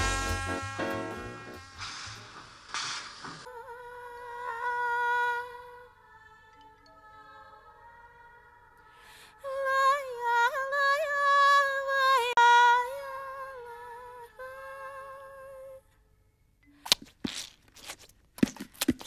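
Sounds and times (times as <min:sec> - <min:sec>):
high vibrato melody: 0:00.0 - 0:02.6.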